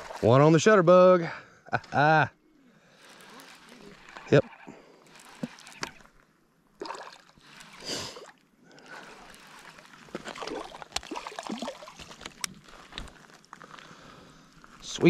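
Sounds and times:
fish splashing in water: 0:02.8 - 0:06.2, 0:06.8 - 0:13.5.

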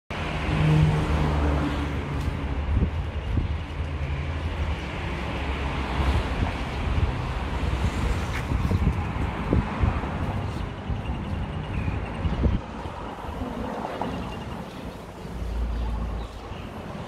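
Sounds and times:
street background noise: 0:00.1 - 0:17.0.

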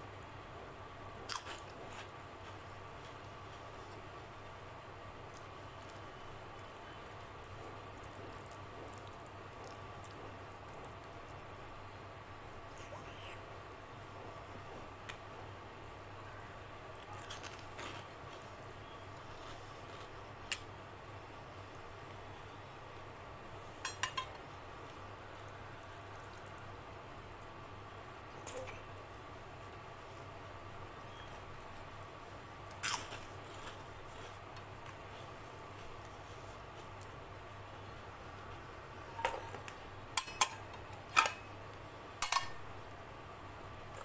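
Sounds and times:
faint steady hum: 0:00.0 - 0:44.0
metal bowl and plate clinking: 0:23.8 - 0:24.3, 0:40.2 - 0:41.5, 0:42.2 - 0:42.6.

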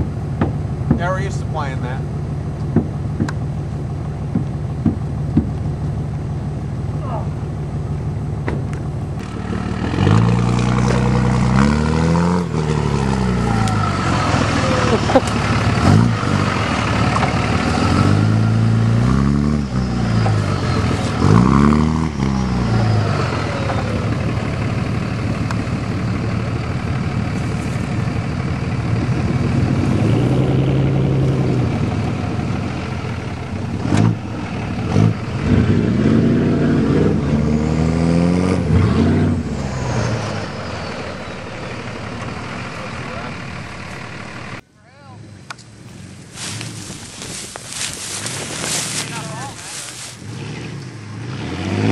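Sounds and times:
diesel engine revving: 0:00.0 - 0:44.7, 0:45.3 - 0:51.9
sharp knocks: 0:04.3 - 0:05.6.

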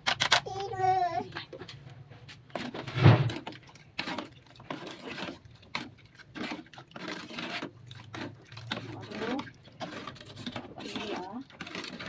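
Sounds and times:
spoon scraping metal saucepan: 0:04.0 - 0:12.0.

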